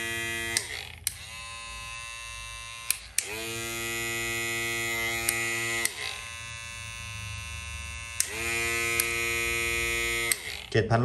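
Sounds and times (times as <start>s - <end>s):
electric hair clippers buzzing: 0.0s - 10.8s.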